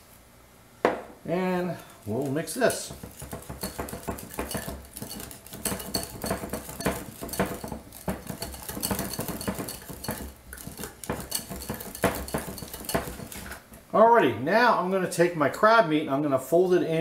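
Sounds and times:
whisk tapping against glass bowl: 0:02.5 - 0:13.6.

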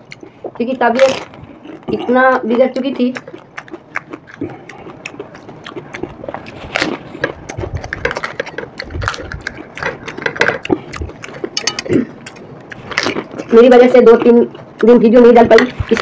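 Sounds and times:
crisp shells cracking and crunching: 0:00.8 - 0:13.6.

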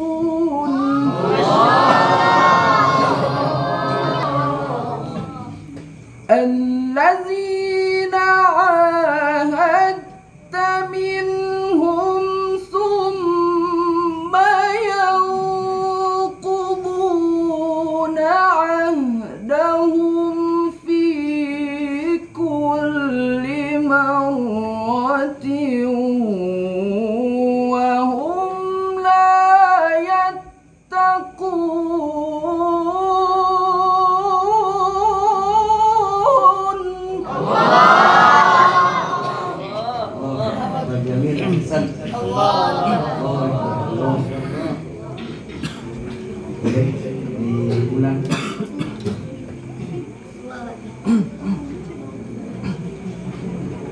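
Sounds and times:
man reciting in melismatic chant: 0:00.0 - 0:05.5, 0:06.3 - 0:37.8, 0:39.6 - 0:44.9.

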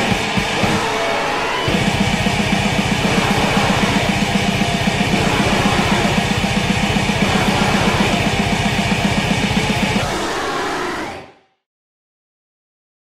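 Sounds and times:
distorted metal guitars: 0:00.0 - 0:11.2
fast double-bass kick drumming: 0:01.7 - 0:10.0.

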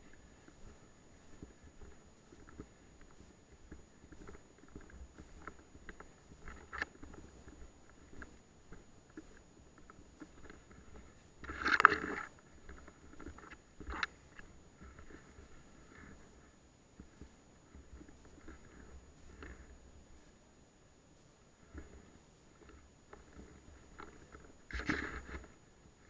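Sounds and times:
small clicks and knocks: 0:00.0 - 0:16.4, 0:21.6 - 0:26.0.

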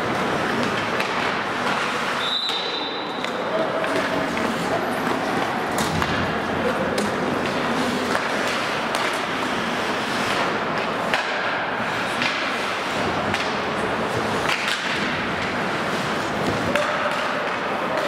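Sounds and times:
skates scraping on ice: 0:00.0 - 0:18.0
sticks striking puck: 0:00.1 - 0:18.0.

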